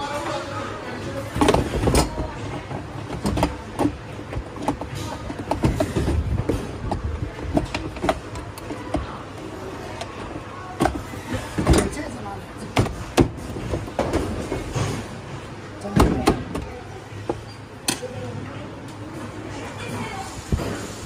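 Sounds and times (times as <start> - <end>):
plastic panels clicking and knocking: 1.3 - 9.2.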